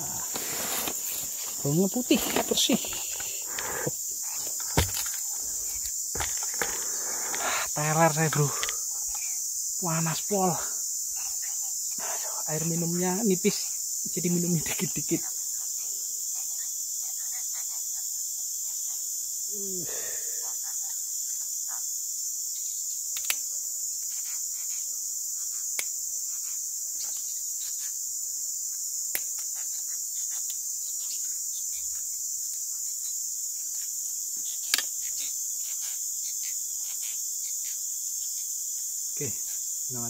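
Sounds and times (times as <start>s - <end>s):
insect chorus: 0.0s - 40.0s.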